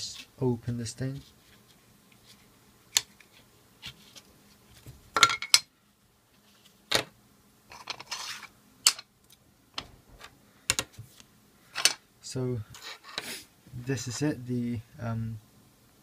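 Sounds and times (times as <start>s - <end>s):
scraping rustle: 7.7s - 8.5s.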